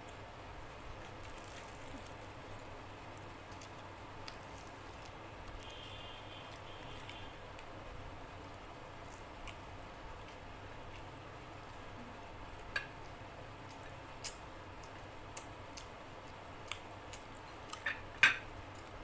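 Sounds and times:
steady low hum: 0:00.0 - 0:19.0
fingers tearing and scooping food: 0:00.9 - 0:07.8, 0:08.4 - 0:12.0.

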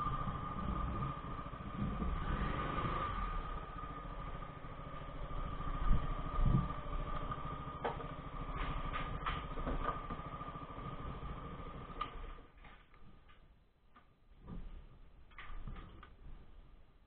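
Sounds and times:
scooter engine idling: 0:00.0 - 0:12.6.

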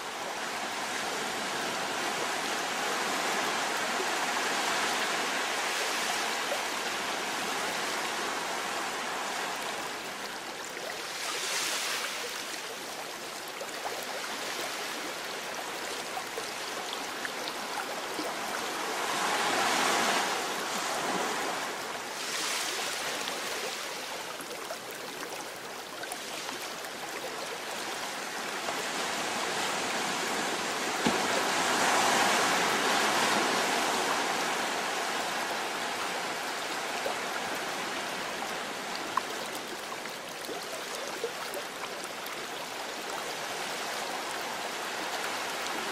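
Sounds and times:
surf breaking on rocky shore: 0:30.5 - 0:35.0.

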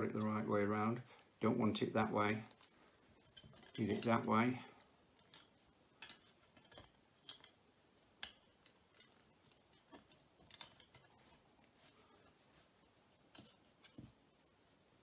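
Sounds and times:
small plastic parts clicking: 0:05.1 - 0:07.6.

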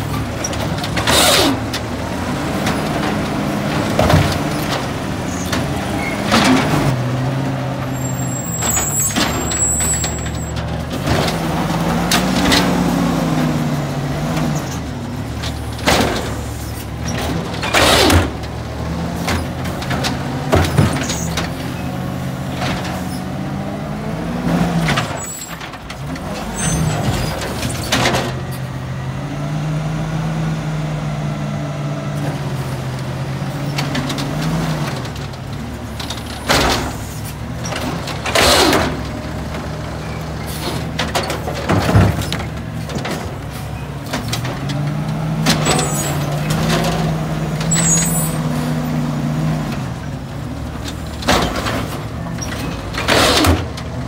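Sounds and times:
garbage truck engine running: 0:00.0 - 0:54.0
trash bins slamming: 0:36.0 - 0:50.0, 0:50.6 - 0:54.0.

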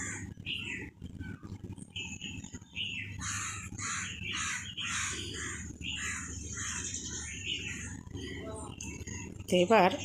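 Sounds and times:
crows cawing: 0:00.0 - 0:00.4, 0:03.2 - 0:07.9
low background hum: 0:00.0 - 0:10.0.

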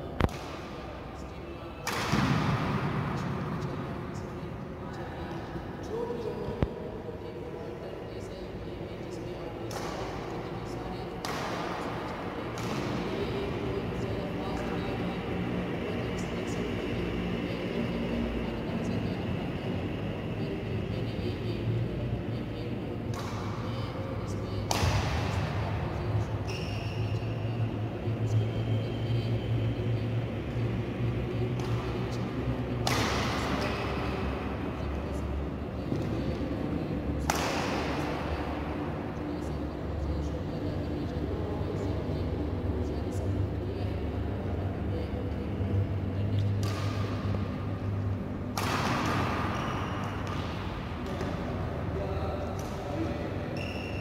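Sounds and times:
low hum in hall: 0:00.0 - 0:54.0
racket hitting shuttlecock: 0:00.2 - 0:01.0, 0:01.8 - 0:03.7, 0:09.6 - 0:14.3, 0:23.0 - 0:23.8, 0:24.6 - 0:25.6, 0:31.6 - 0:32.0, 0:32.7 - 0:34.2, 0:37.2 - 0:38.3, 0:46.4 - 0:47.5, 0:48.5 - 0:51.7, 0:52.6 - 0:53.9.

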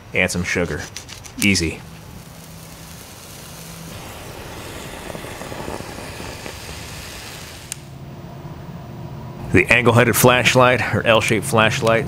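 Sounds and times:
hiss of flame with faint crackles: 0:00.1 - 0:08.6.

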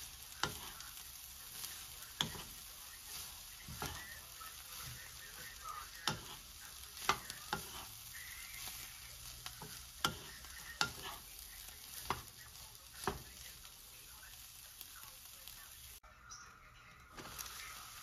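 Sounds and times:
spatula stirring in frying pan: 0:00.0 - 0:16.0, 0:17.1 - 0:18.0
faint sizzle: 0:00.0 - 0:18.0
spatula knocking against pan: 0:06.0 - 0:06.4.

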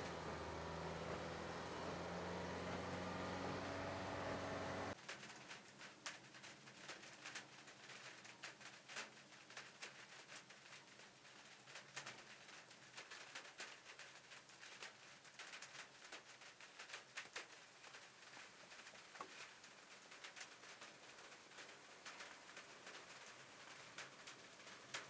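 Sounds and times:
raindrops pattering: 0:00.0 - 0:25.0.

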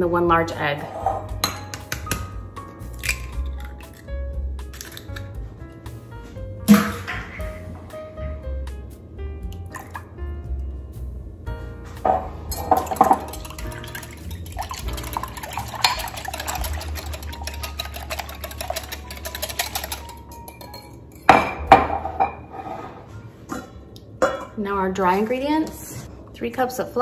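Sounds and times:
wire whisk clinking against glass: 0:12.5 - 0:21.4.

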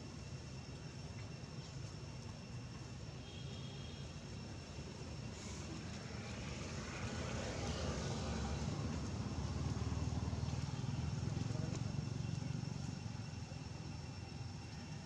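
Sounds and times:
vehicle engine humming: 0:04.0 - 0:15.0.

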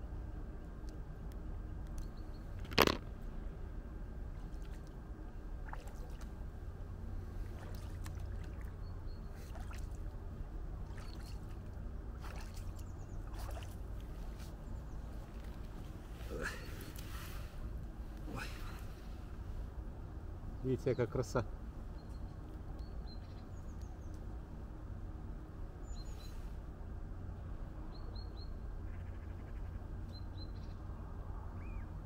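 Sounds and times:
feet splashing in shallow water: 0:05.6 - 0:06.3, 0:07.4 - 0:10.1, 0:10.8 - 0:14.6.

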